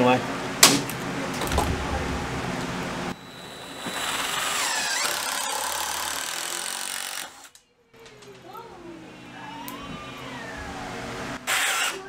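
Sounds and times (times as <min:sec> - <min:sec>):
impact driver driving screws: 0:03.9 - 0:07.5, 0:11.5 - 0:12.0.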